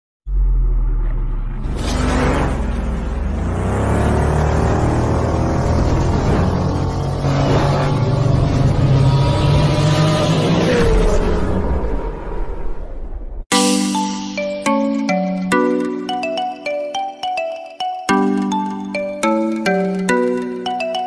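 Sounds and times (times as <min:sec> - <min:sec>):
deep engine drone: 0:00.2 - 0:13.4
vehicles whooshing past: 0:00.3 - 0:13.0.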